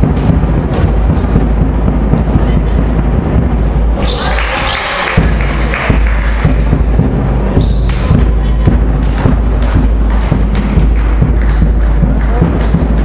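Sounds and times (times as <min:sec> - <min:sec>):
basketball bouncing on wooden floor: 0:00.0 - 0:03.6, 0:05.8 - 0:13.0
rumbling hall ambience: 0:00.0 - 0:13.0.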